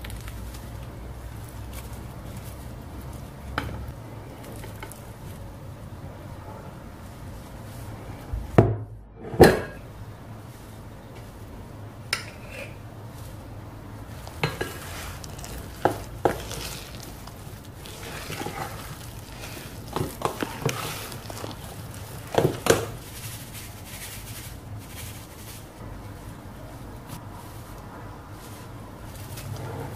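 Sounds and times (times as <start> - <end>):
batter stirring: 0.0 - 6.0, 12.1 - 29.9.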